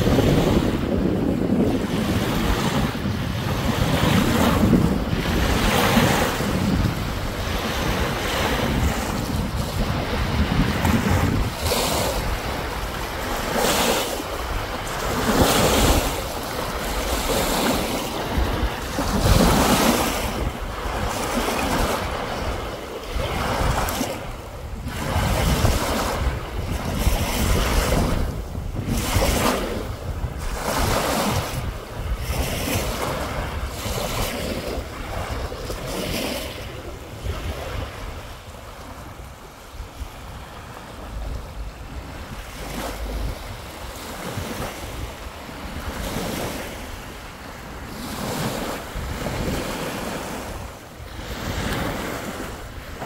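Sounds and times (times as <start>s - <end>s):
waves washing on sandy beach: 0.0s - 53.0s
wind buffeting microphone: 0.0s - 53.0s.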